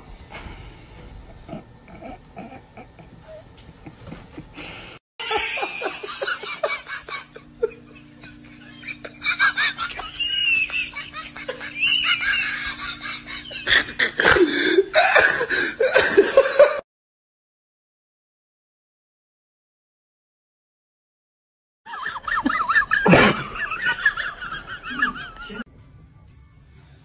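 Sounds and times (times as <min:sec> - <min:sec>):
low steady hum: 0:00.0 - 0:16.7
laughter bursts: 0:05.2 - 0:16.8, 0:21.9 - 0:25.6.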